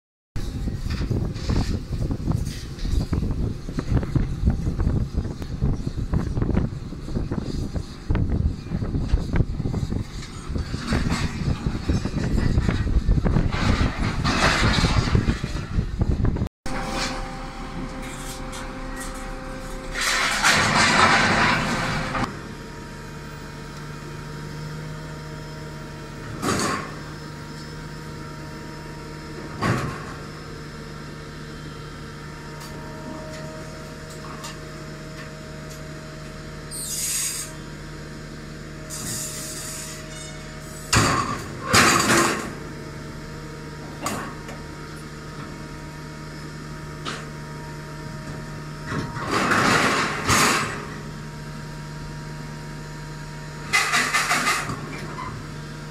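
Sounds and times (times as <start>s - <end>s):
heavy machinery running: 0.4s - 55.9s
metal crashes and clanks: 19.9s - 22.3s, 49.2s - 50.9s.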